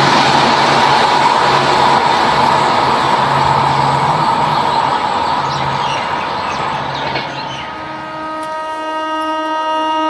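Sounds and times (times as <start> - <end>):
loud rushing noise: 0.0 - 8.0
train horn blast: 7.3 - 10.0.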